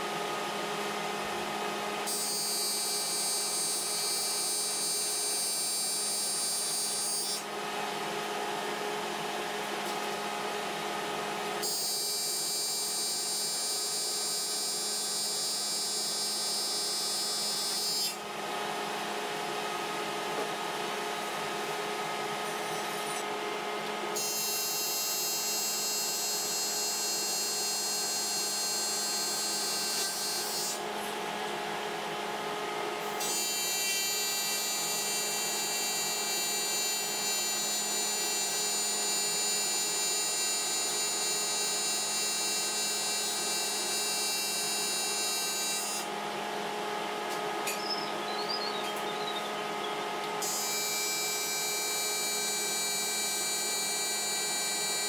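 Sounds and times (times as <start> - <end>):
welding machine hum: 0.0 - 47.7, 49.7 - 55.0
welding arc buzzing: 2.0 - 7.4, 11.6 - 18.2, 24.1 - 30.8, 33.0 - 46.1, 50.3 - 55.0.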